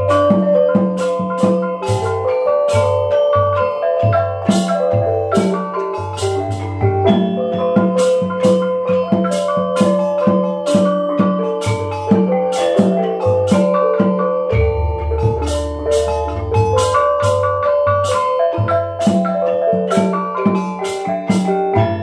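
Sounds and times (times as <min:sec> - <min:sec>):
hand drum strokes: 0:00.0 - 0:22.0.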